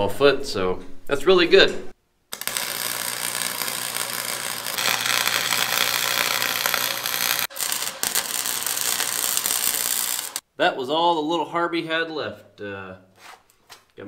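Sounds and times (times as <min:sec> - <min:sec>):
welding arc crackling: 0:02.3 - 0:10.4.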